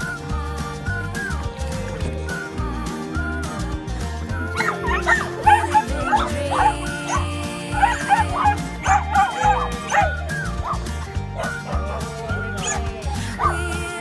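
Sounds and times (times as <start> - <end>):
background music with steady beat: 0.0 - 14.0
small dogs yipping and whining: 4.5 - 13.7.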